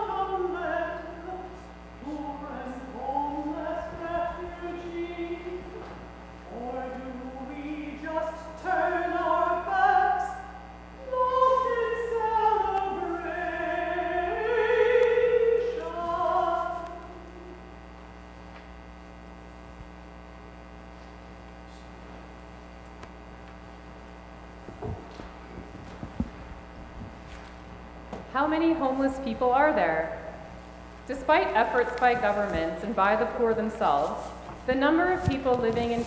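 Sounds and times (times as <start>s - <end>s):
person singing slow melody: 0.0s - 17.8s
steady low hum: 0.0s - 36.0s.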